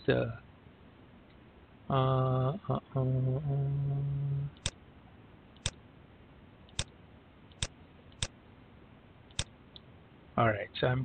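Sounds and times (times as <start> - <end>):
computer mouse clicking: 6.7 - 6.9.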